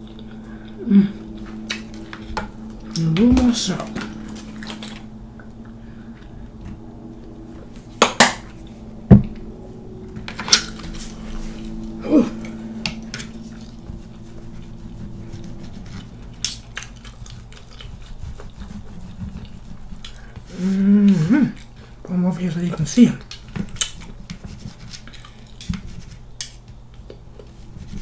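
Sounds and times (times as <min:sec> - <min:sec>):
low steady hum: 0:00.0 - 0:28.0.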